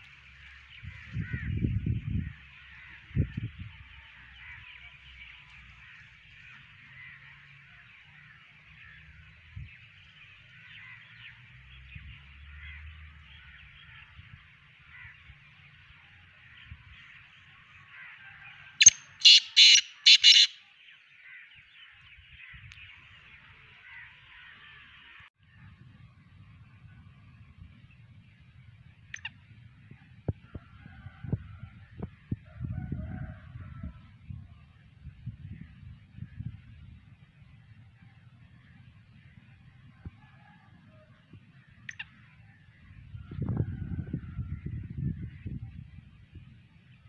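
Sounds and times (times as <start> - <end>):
bird calling harsh notes: 18.8 - 20.7.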